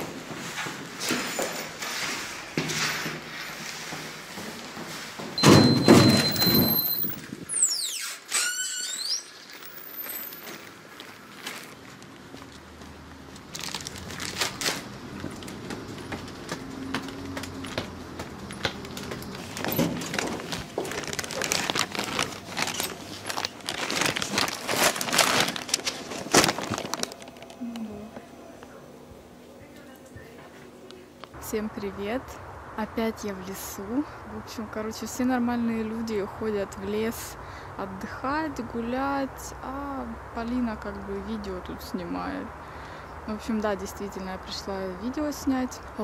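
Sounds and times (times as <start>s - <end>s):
high electronic beep: 5.4s - 7.2s
wavering door squeal: 5.4s - 10.4s.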